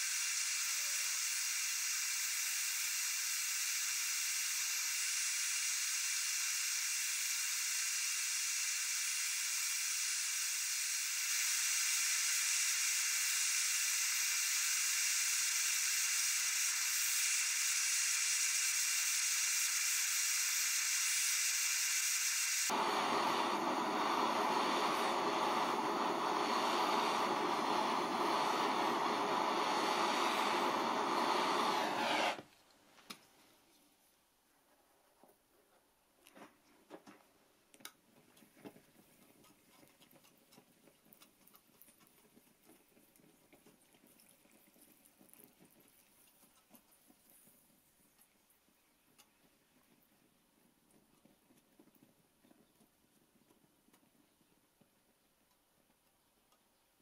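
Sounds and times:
gas torch flame hissing: 0:00.0 - 0:32.5.

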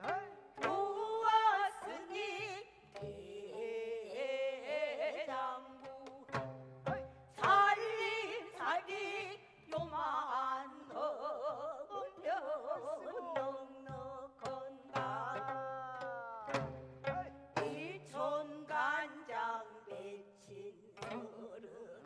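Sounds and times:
woman singing with vibrato: 0:00.0 - 0:06.3, 0:07.3 - 0:16.5, 0:17.2 - 0:22.0
plucked zither: 0:14.9 - 0:18.3.

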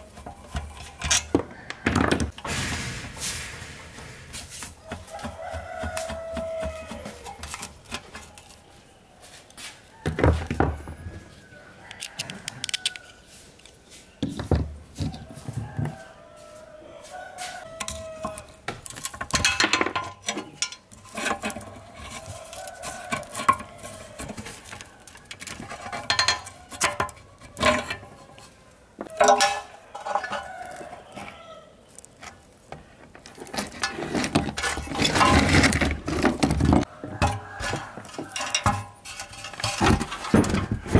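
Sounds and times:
metal tools clinking and clattering: 0:00.2 - 0:01.4, 0:17.8 - 0:28.3, 0:29.2 - 0:30.6, 0:33.5 - 0:40.9.

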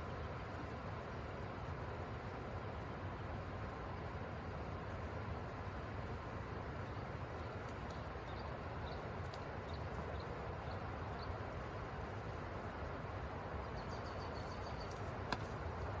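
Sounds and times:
bird chirps: 0:13.8 - 0:15.0.

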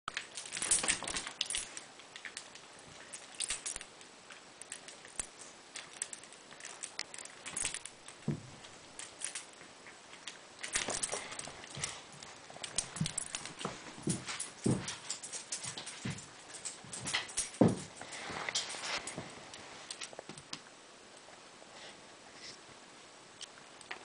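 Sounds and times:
dog tags jingling: 0:00.1 - 0:03.9, 0:12.6 - 0:19.0.

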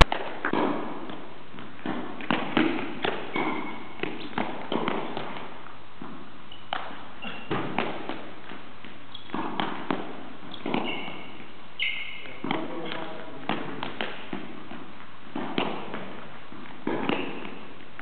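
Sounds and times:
shoes squeaking on floor: 0:00.8 - 0:18.0.

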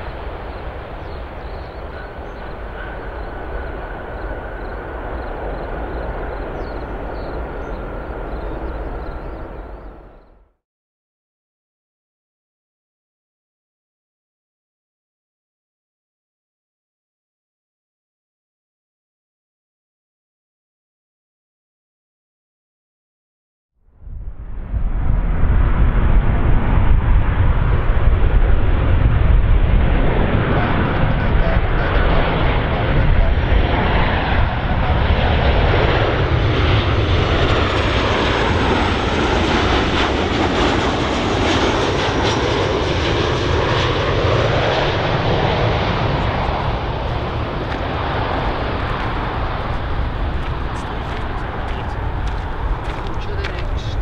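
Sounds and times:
jet engines roaring: 0:00.0 - 0:10.3, 0:24.1 - 0:54.0.

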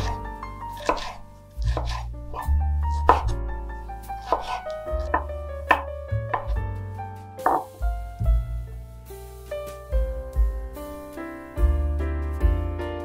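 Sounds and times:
knife chopping on wooden board: 0:00.0 - 0:00.2, 0:00.8 - 0:03.4, 0:04.2 - 0:06.6, 0:07.4 - 0:07.7
background music: 0:00.0 - 0:13.0.

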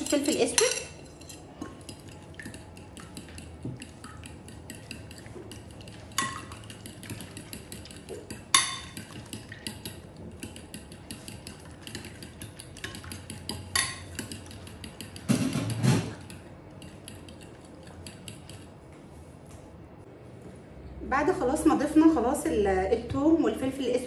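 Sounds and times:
fork ticking against ceramic dish: 0:00.0 - 0:15.3, 0:16.2 - 0:18.7.

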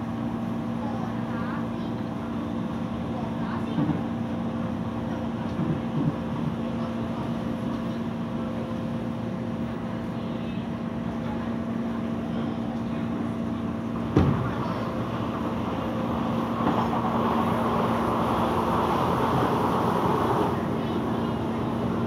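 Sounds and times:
train motors humming: 0:00.0 - 0:22.0
train running noise: 0:00.0 - 0:22.0
passing train rushing by: 0:13.7 - 0:22.0.

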